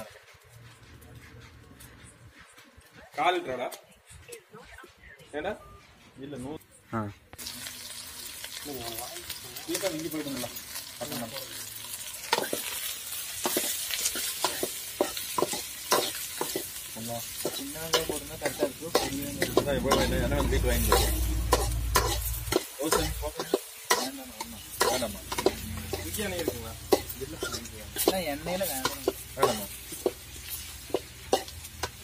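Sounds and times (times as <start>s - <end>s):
onions sizzling in oil: 7.4s - 32.0s
metal ladle scraping wok: 10.6s - 32.0s.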